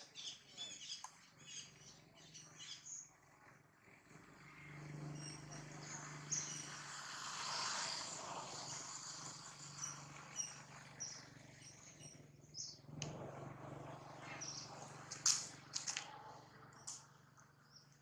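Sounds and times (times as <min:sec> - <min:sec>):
small birds chirping: 0:00.0 - 0:03.2, 0:03.9 - 0:13.0, 0:13.8 - 0:18.0.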